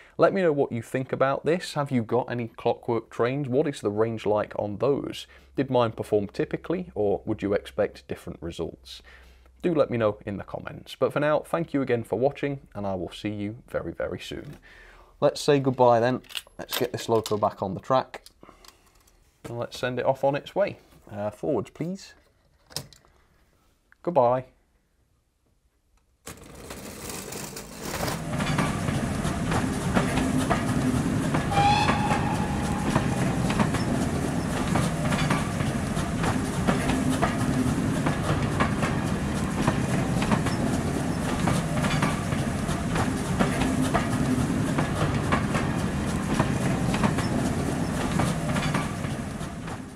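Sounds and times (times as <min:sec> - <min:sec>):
train wheels clicking over rail joints: 0:27.8 - 0:49.9
short high note: 0:31.4 - 0:34.6.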